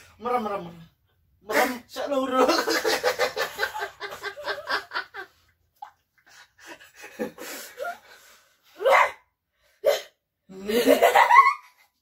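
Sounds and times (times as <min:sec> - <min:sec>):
people laughing and giggling: 0:02.5 - 0:05.4.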